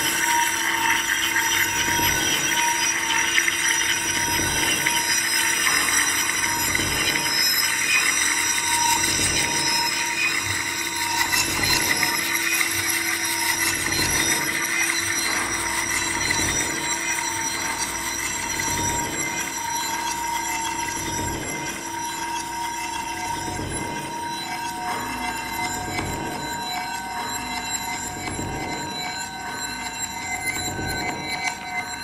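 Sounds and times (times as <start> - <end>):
ambient drone music: 0.2 - 4.1.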